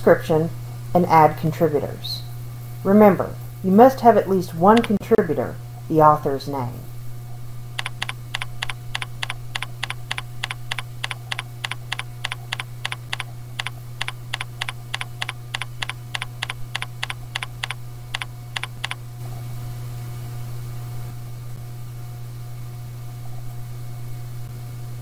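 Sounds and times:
steady low hum: 0:00.0 - 0:25.0
keyboard typing: 0:04.8 - 0:05.0, 0:07.8 - 0:19.0.

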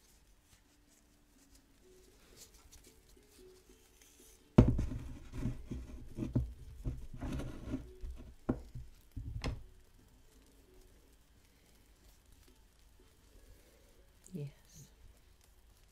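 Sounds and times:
irregular knocking and rustling: 0:04.5 - 0:10.5.

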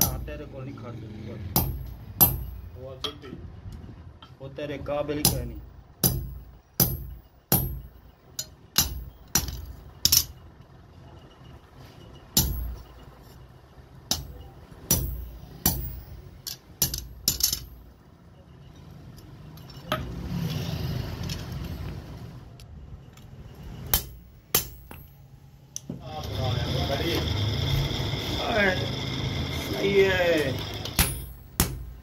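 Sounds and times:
hammer striking steel punch: 0:01.6 - 0:03.2, 0:05.2 - 0:10.3, 0:12.4 - 0:12.9, 0:14.1 - 0:16.2, 0:23.9 - 0:25.1, 0:31.0 - 0:32.0.

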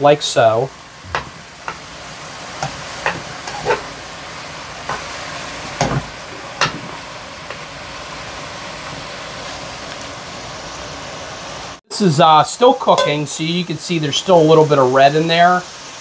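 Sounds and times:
sausage sizzling in frying pan: 0:00.0 - 0:16.0
utensil scraping against pan: 0:03.0 - 0:04.0.

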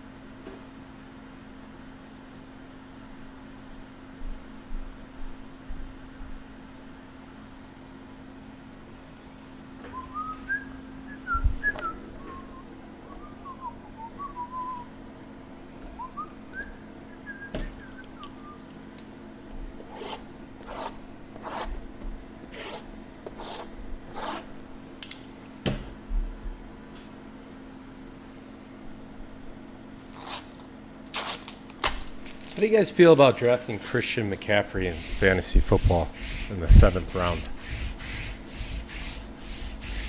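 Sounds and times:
steady low hum: 0:00.0 - 0:40.0
person whistling a tune: 0:09.9 - 0:14.9, 0:16.0 - 0:18.7.

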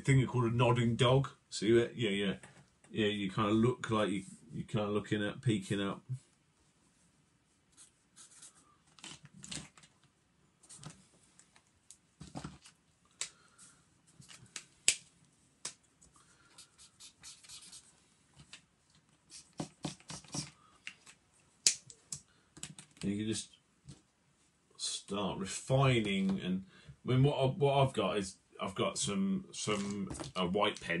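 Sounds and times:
marker pens scratching on paper: 0:07.7 - 0:08.6, 0:16.4 - 0:17.9, 0:19.2 - 0:20.6
pens and caps clicking: 0:19.4 - 0:23.1.

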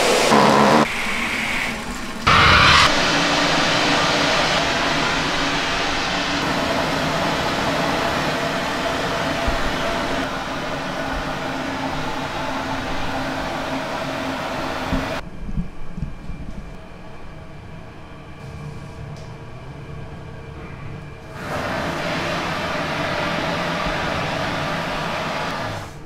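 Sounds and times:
steam hissing: 0:00.0 - 0:15.2, 0:21.3 - 0:26.0
low hum: 0:02.2 - 0:21.4.

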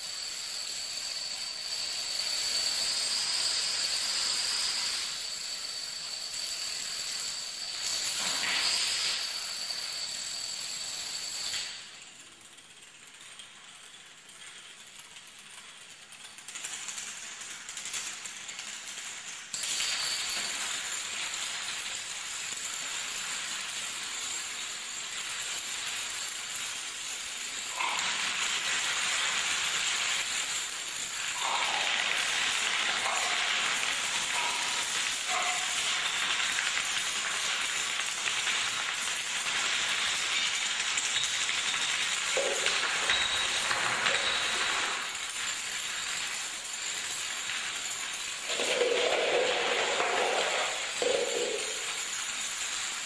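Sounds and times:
dominoes toppling on wooden floor: 0:16.5 - 0:53.0.

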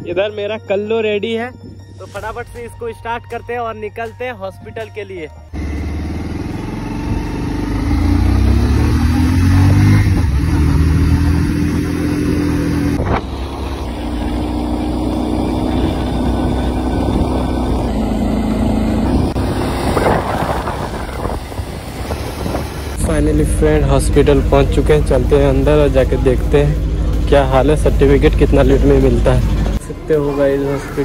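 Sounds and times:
motorcycle engine accelerating: 0:05.5 - 0:31.0
wind rushing over microphone: 0:12.9 - 0:13.4, 0:19.0 - 0:23.0.

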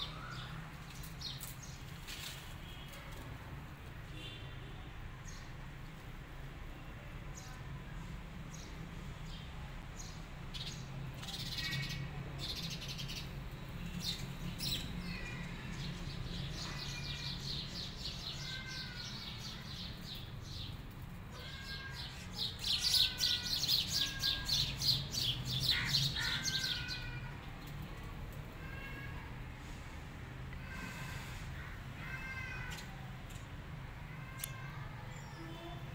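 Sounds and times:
small birds chirping: 0:08.5 - 0:27.8.

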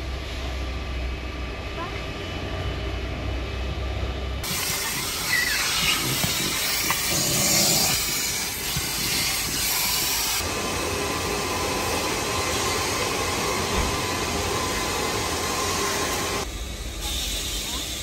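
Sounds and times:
vacuum hose hissing: 0:04.4 - 0:10.4.

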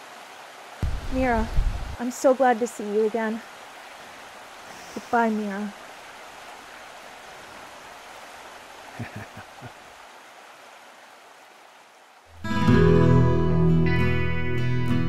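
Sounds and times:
stream rushing: 0:00.0 - 0:14.3
guitar music: 0:12.3 - 0:15.0.

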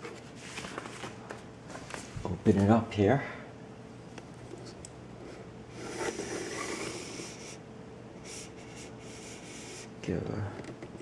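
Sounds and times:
laptop handling rustle: 0:00.0 - 0:02.2
faint steady hum: 0:00.0 - 0:11.0.

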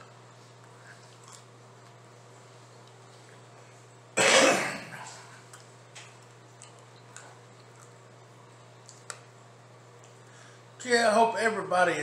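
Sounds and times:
man chewing mouth clicks: 0:00.0 - 0:02.0, 0:02.7 - 0:03.5, 0:05.0 - 0:09.3, 0:10.0 - 0:10.3
low steady hum: 0:00.0 - 0:12.0.

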